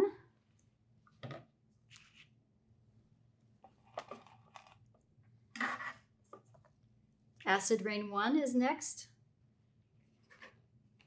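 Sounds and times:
plastic pots rustling and scraping: 5.6s - 6.8s, 10.2s - 10.6s.

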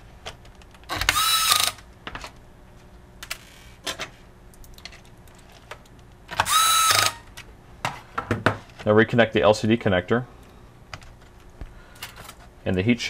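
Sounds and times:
electric screwdriver motor whine: 1.0s - 1.8s, 6.4s - 7.2s.

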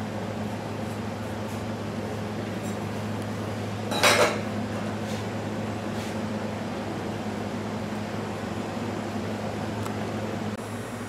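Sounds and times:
mechanical hum: 0.0s - 11.0s
knife clattering on metal table: 3.9s - 4.4s.

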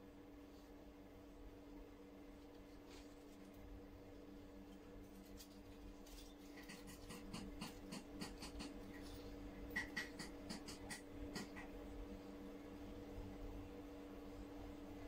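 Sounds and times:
steady low hum: 0.0s - 15.0s
faint clicks and ticks: 4.7s - 11.9s.

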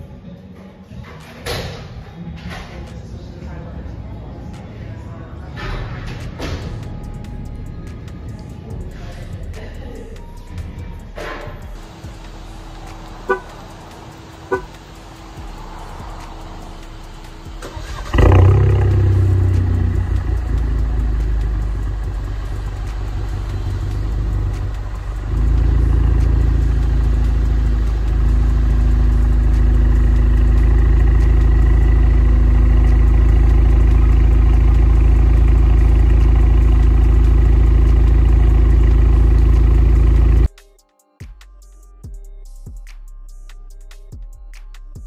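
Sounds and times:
car engine idle rumble: 5.9s - 40.5s.

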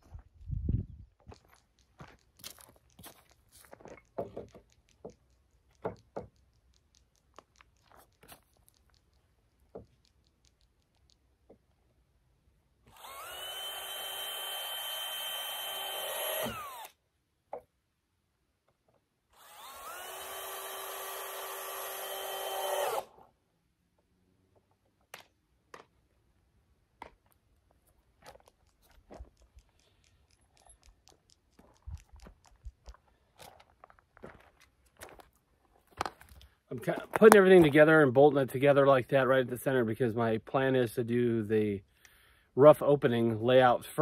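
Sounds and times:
cordless drill motor whine: 12.9s - 17.0s, 19.3s - 23.2s.

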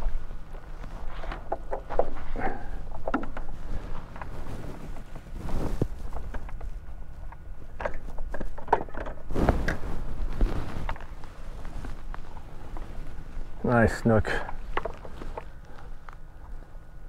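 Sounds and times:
low wind rumble: 0.0s - 17.0s.

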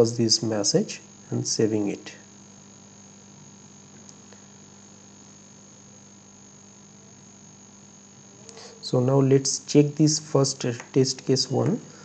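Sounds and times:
electrical hum and hiss: 0.0s - 12.0s
faint high-pitched whine: 0.0s - 12.0s.

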